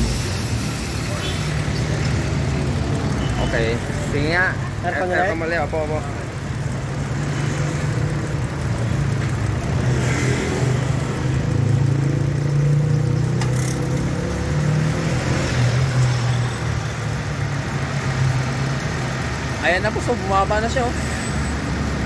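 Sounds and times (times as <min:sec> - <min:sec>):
car engine idling: 0:00.0 - 0:22.0.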